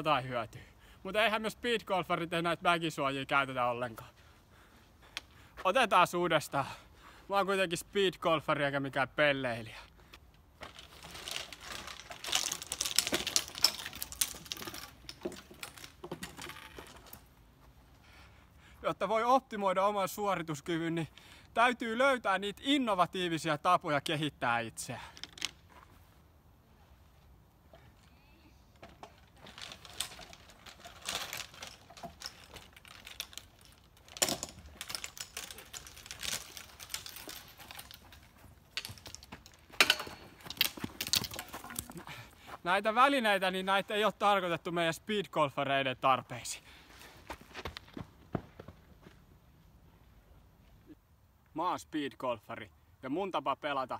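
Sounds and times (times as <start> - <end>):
golf clubs rattling in bag: 10.6 - 17.3, 28.8 - 42.1.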